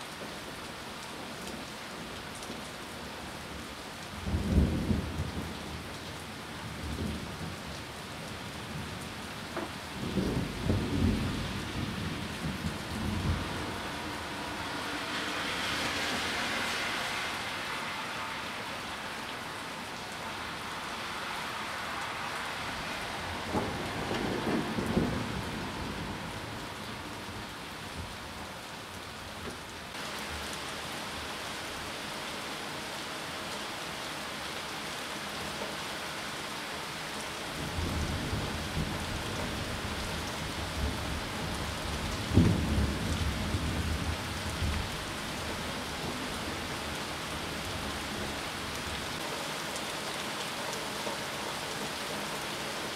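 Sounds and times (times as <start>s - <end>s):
rain falling on trees: 0.0s - 52.9s
thunder rumbling: 9.6s - 14.3s, 23.2s - 27.3s, 37.6s - 45.2s.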